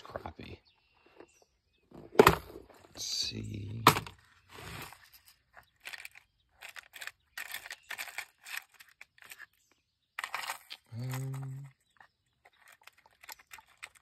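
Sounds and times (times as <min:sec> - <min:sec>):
lures rattling in plastic box: 0:04.7 - 0:14.0.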